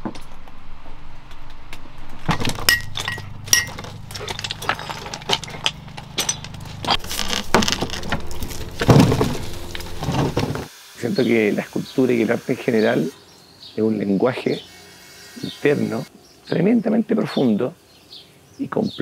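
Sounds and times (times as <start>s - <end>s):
steady low hum: 0.3s - 10.7s.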